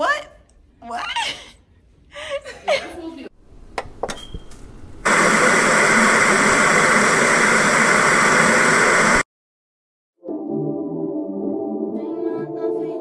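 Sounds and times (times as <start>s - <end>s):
static-like hiss: 4.5s - 9.2s
music: 10.2s - 13.0s.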